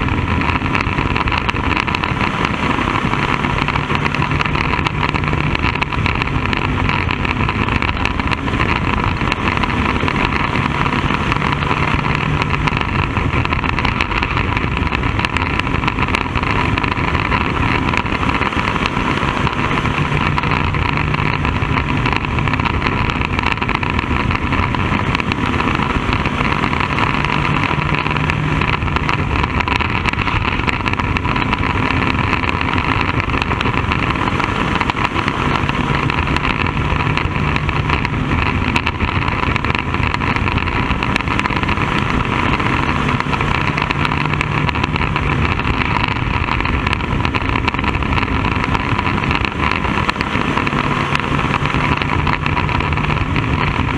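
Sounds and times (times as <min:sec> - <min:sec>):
low hum: 0:00.0 - 0:53.9
race car engine running: 0:00.0 - 0:53.9.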